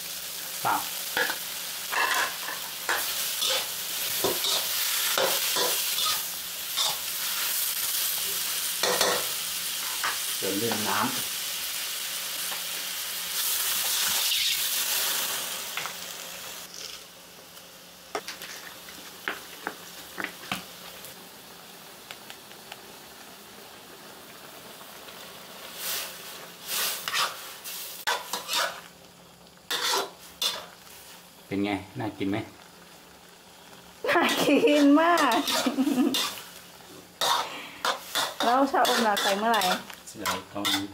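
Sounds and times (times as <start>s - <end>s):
food sizzling in a wok: 0.0s - 40.9s
metal spatula scraping a wok: 1.2s - 7.1s, 26.6s - 28.9s, 29.7s - 30.7s, 34.3s - 36.6s, 37.2s - 40.9s.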